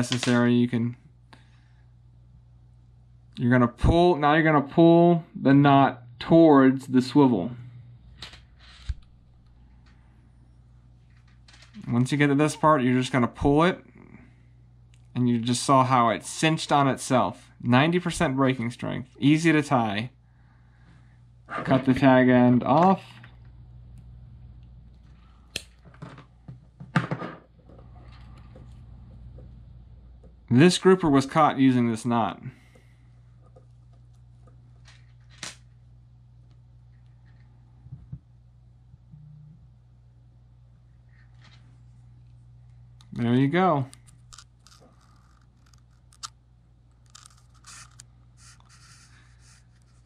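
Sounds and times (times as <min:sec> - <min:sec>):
faint steady hum: 0:00.0 - 0:50.0
faint scratching and rubbing: 0:47.2 - 0:50.0.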